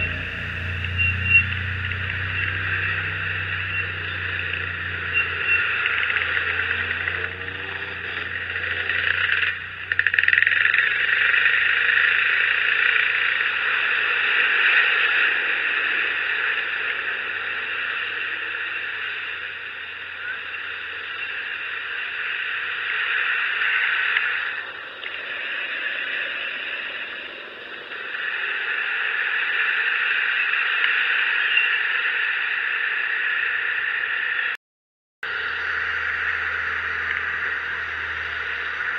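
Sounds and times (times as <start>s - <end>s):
faint low engine hum: 0.0s - 25.7s, 35.2s - 38.9s.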